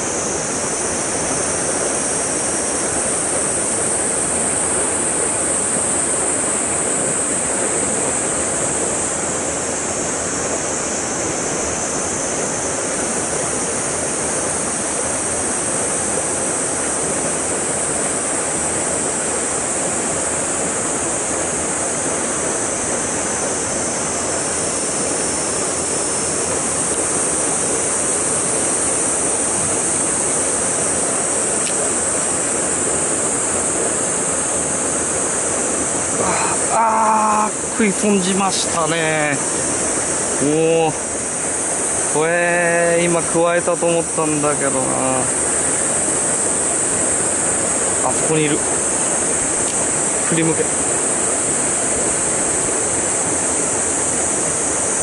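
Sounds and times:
high hiss: 0.0s - 55.0s
stream water rushing over rocks: 0.0s - 55.0s.

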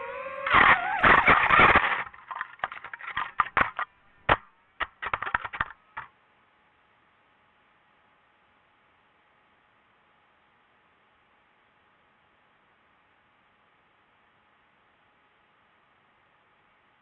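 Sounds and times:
drone crashing into branch: 0.3s - 4.4s
sharp clicks and cracks: 0.4s - 6.1s.

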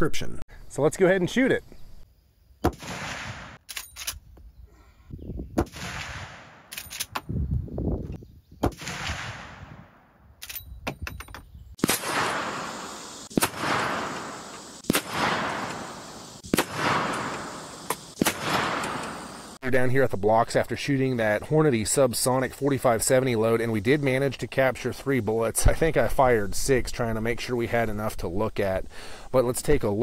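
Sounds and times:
rifle shots echoing: 2.6s - 3.6s, 5.6s - 6.8s, 8.6s - 10.0s, 11.8s - 19.5s.

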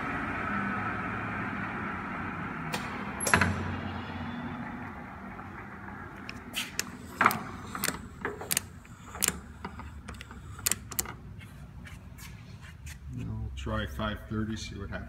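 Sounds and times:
lathe speed selector clicks: 6.7s - 9.4s, 10.0s - 11.2s.

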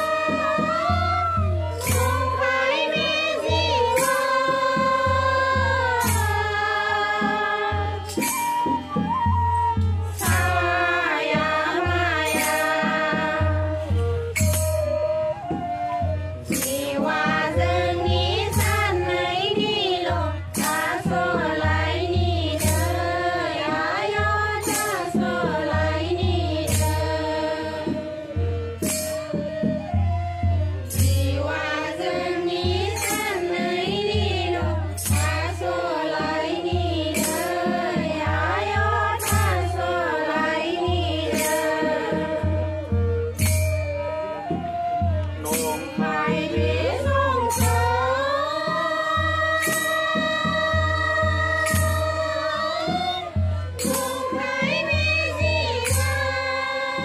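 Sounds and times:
group singing prayer song: 0.0s - 8.4s, 10.2s - 14.0s, 16.6s - 28.4s, 30.9s - 43.0s, 45.5s - 57.0s.

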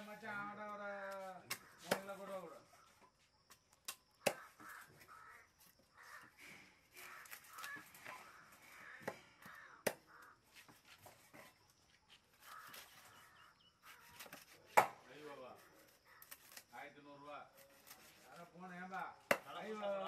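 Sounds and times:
crows cawing: 1.5s - 2.0s, 4.2s - 10.8s, 12.3s - 14.4s, 15.6s - 16.6s
cleaver chopping on wooden block: 3.9s - 4.7s, 14.1s - 15.0s, 19.3s - 19.5s.

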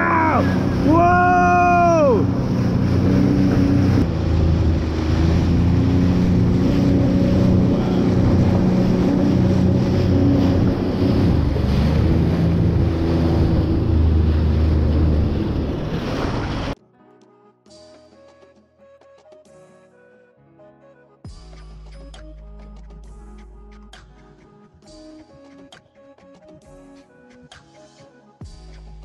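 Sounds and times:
jet ski engine drone: 0.0s - 16.8s
wind buffeting microphone: 0.0s - 16.8s.

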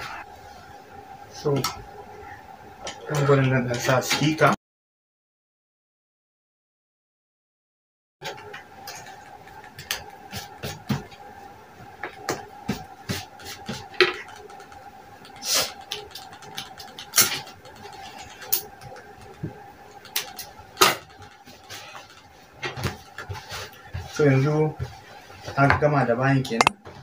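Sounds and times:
faint steady hum: 0.0s - 4.6s.

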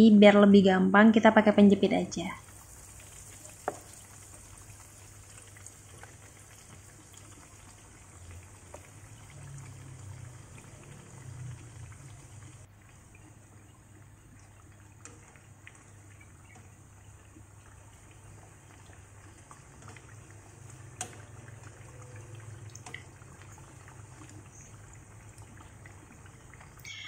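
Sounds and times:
food sizzling in hot oil: 2.3s - 12.7s.

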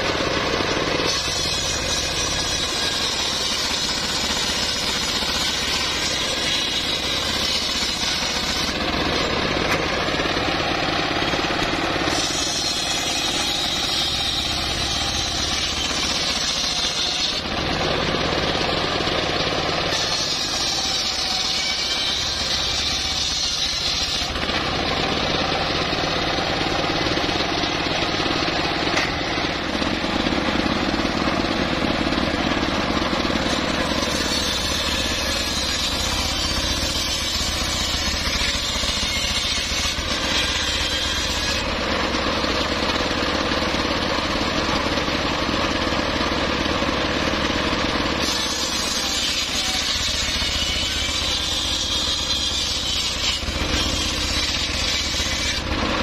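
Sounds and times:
circular saw ripping through logs: 0.0s - 56.0s.

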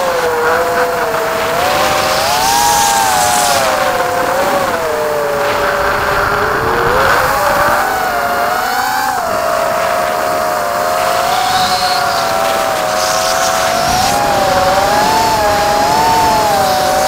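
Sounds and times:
drone motors and propellers whining: 0.0s - 17.0s.

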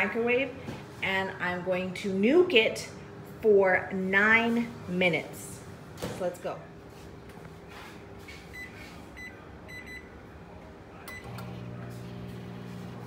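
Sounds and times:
microwave running hum: 6.7s - 13.0s
microwave keypad beeps: 8.6s - 10.1s.

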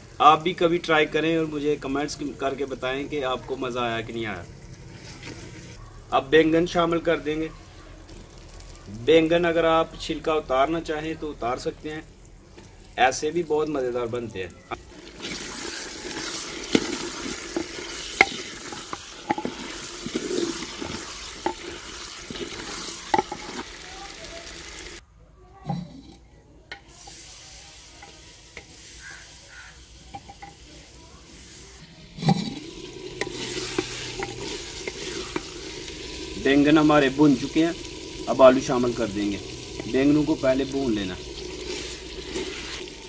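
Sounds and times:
vegetables sizzling in a pot: 0.0s - 25.0s, 26.7s - 43.0s
wooden spoon scraping a clay pot: 15.0s - 23.8s, 32.1s - 36.4s, 41.2s - 43.0s.

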